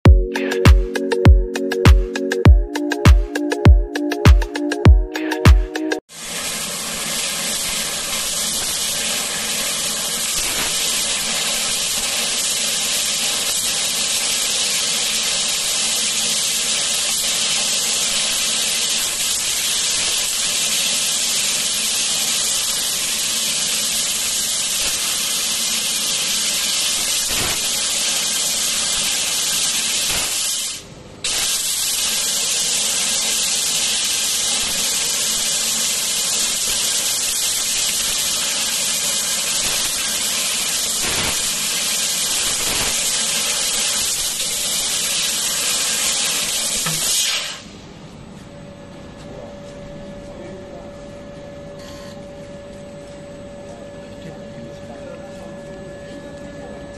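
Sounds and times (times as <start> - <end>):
laser cutter hissing: 6.2 - 47.7.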